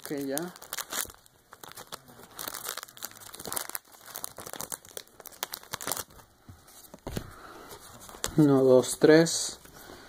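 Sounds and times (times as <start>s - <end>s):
foil wrapper crinkling: 0.0s - 6.9s.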